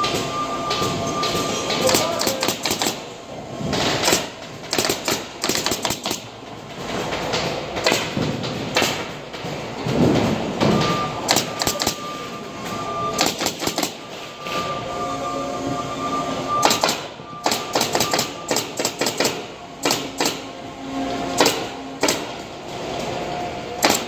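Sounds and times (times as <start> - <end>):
steady high tone: 13.9 - 18.5.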